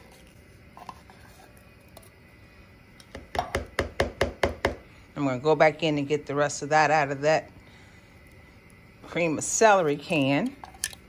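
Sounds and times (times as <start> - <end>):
spatula knocking on a mixing bowl: 3.1 - 4.8.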